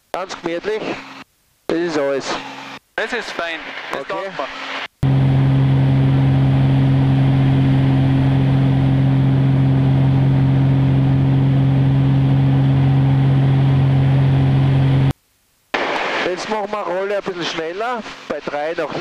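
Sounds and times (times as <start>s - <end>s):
steady rushing noise: 1.9s - 8.7s, 15.8s - 19.0s
propeller plane engine droning: 2.1s - 15.1s.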